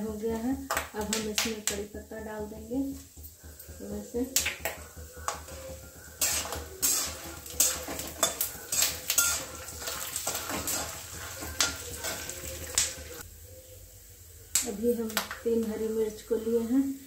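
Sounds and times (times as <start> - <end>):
frying sizzle: 0.0 - 17.0
metal spatula scraping pan: 4.6 - 13.2.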